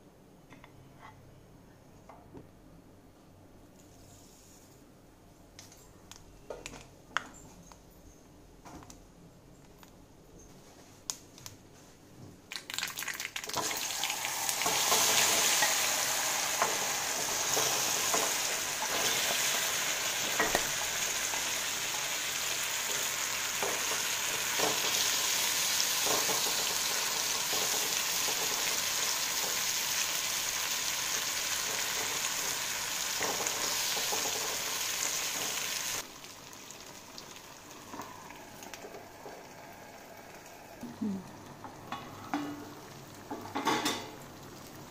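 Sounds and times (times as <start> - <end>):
food sizzling in oil: 12.6 - 40.8.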